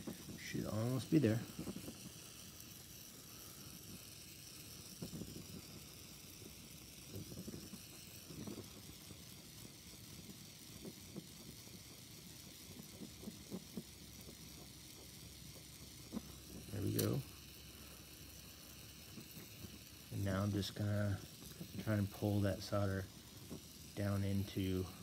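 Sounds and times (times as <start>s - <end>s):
gas torch hissing: 0.0s - 25.0s.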